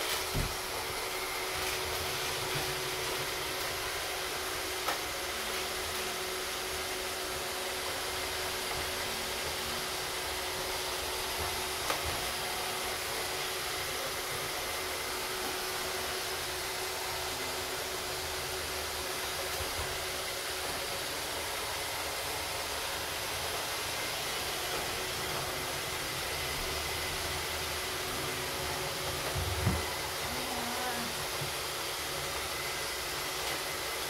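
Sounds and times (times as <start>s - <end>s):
robot vacuums whirring: 0.0s - 34.0s.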